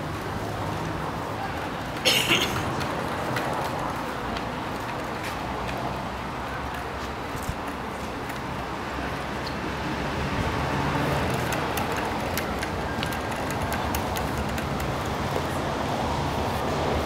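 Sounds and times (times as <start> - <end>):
street traffic noise: 0.0 - 17.0.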